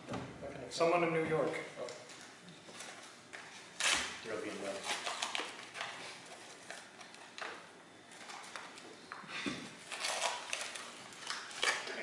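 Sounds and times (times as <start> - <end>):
paper rustling and crinkling: 9.8 - 12.0.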